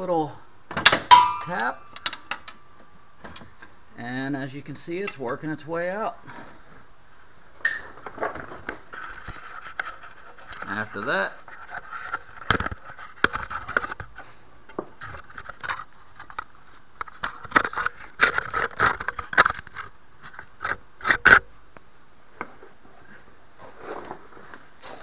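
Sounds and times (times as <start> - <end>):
scraping and rustling: 7.8 - 21.4, 22.4 - 25.0.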